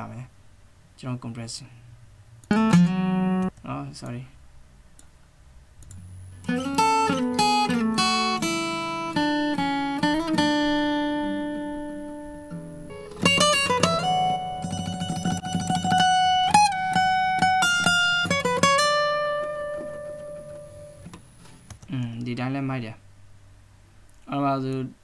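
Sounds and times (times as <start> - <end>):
plucked acoustic guitar: 2.5 - 3.5, 6.3 - 21.2.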